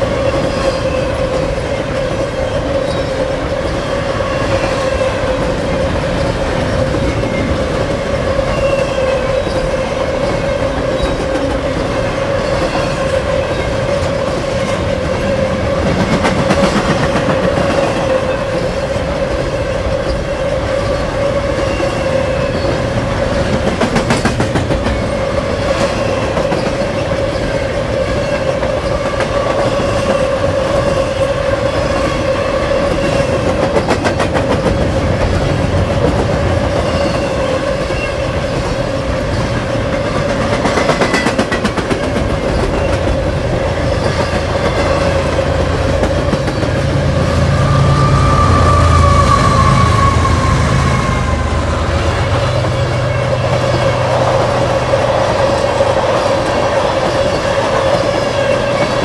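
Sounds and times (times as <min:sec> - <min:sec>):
train wheels clacking on rails: 0:00.0 - 0:59.0
steady tone: 0:43.7 - 0:55.8.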